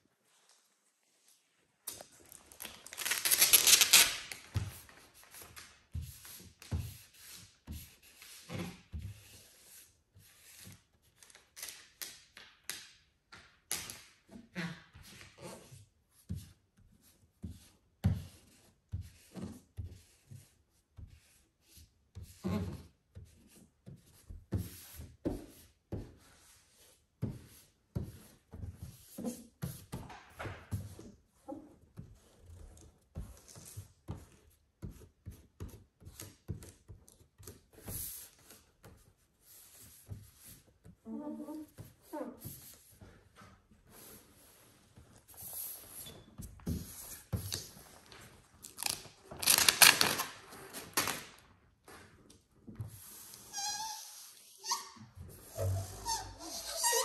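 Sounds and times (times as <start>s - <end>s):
hands rubbing wet vinyl film: 1.9s - 5.8s, 47.2s - 51.3s.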